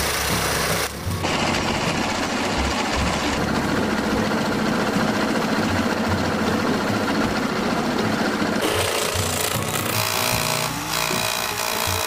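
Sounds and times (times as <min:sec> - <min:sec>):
handheld power tool buzzing: 0:08.6 - 0:12.0.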